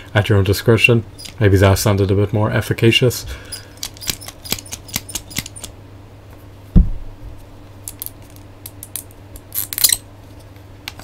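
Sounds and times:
plastic figure clicks and rattles: 0:03.8 - 0:05.7
dull thump: 0:06.7 - 0:07.1.

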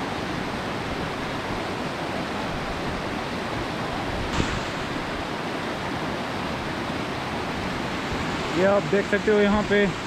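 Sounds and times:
mountain stream rushing: 0:00.0 - 0:10.0
brief knock: 0:04.3 - 0:05.0.

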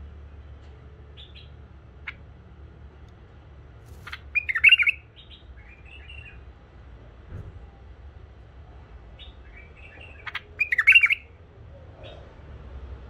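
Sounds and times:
bulbul chirping and warbling: 0:04.0 - 0:05.4, 0:10.2 - 0:11.2.

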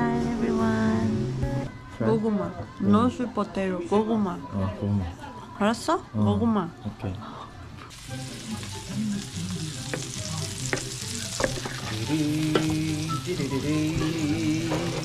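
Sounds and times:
patties sizzling in oil: 0:07.9 - 0:15.0.

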